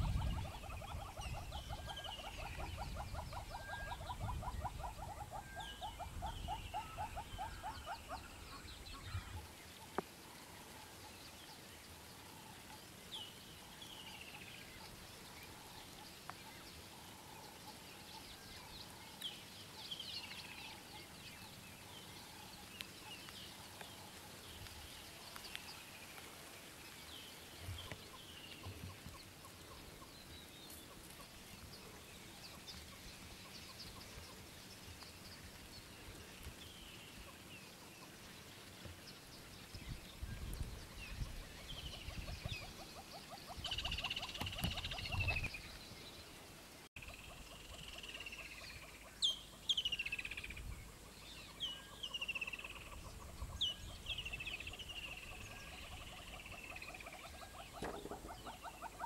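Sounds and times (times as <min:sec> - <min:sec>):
hornbill clucking: 0:57.2 - 0:59.0.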